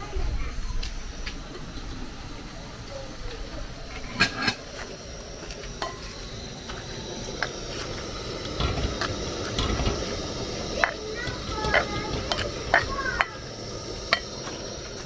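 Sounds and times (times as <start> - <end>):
steady hiss: 0.0 - 15.0
metal spoon stirring in pot: 5.6 - 15.0.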